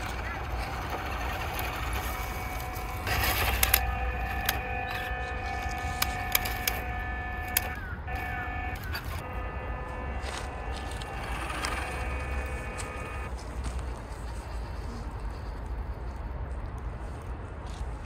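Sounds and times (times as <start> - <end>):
toy car motor whine: 0.0 - 13.3
dry leaves crackling: 0.0 - 17.4.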